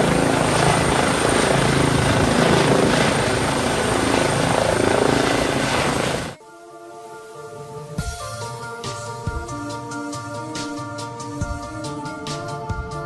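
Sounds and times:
helicopter rotor and engine: 0.0 - 6.4.

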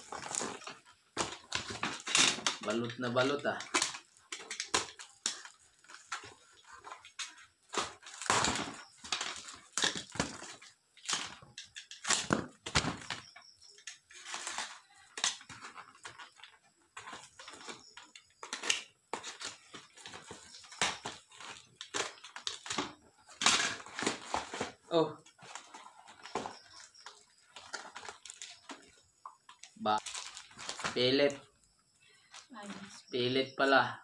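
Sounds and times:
cardboard parcel ripping: 0.0 - 13.3, 14.1 - 24.8, 29.9 - 31.2.

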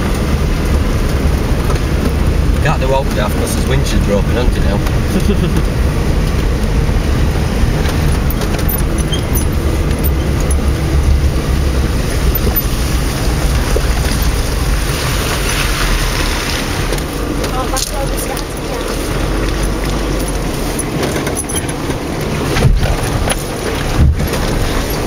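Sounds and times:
engine low rumble: 0.0 - 25.0
suspension knocks over bumps: 6.0 - 25.0.

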